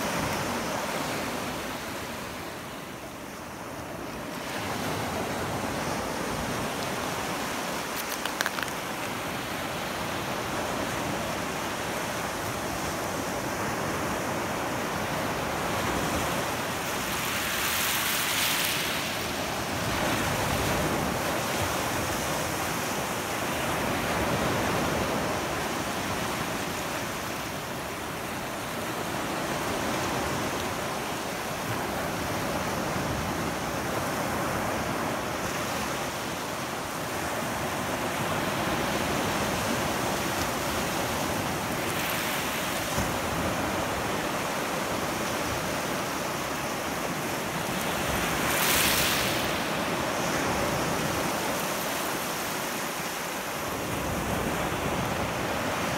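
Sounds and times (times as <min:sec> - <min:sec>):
small waves washing over shells: 0:07.8 - 0:09.4.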